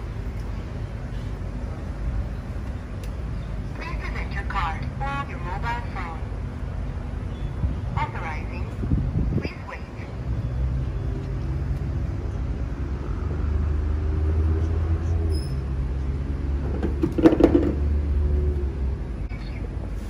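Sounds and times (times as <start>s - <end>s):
low mechanical rumble with hum: 0.0s - 20.0s
loud clatter: 16.6s - 17.9s.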